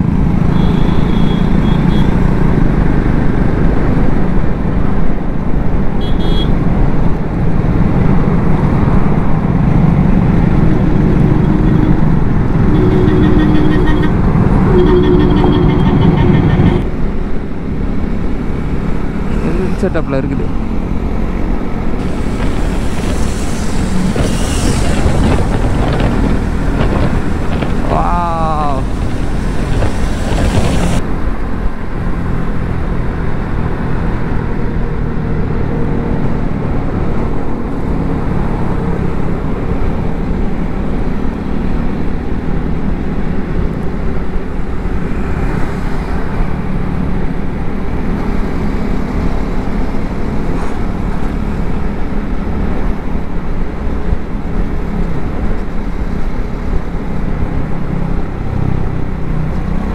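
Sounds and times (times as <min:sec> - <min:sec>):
road noise: 0:00.0 - 0:59.9
motorcycle engines cruising: 0:06.8 - 0:32.2.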